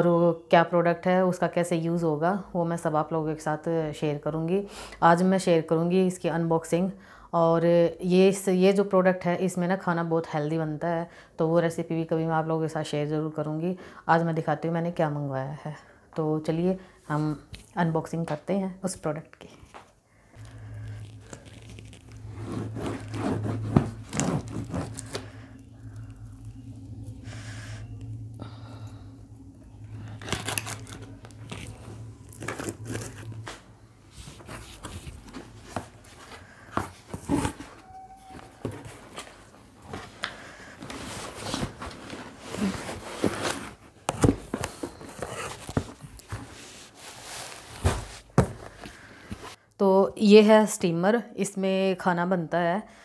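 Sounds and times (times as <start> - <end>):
low steady hum: 0.0 - 51.6
packing tape tearing: 20.4 - 25.4, 30.1 - 33.5
cardboard scraping and crinkling: 20.4 - 25.6, 30.1 - 49.6.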